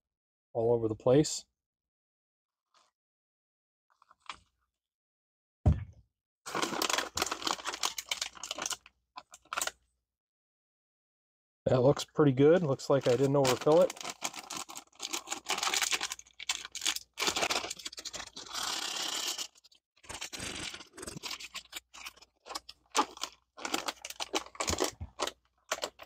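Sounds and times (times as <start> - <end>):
plastic bag crinkling and rustling: 12.8 - 26.0.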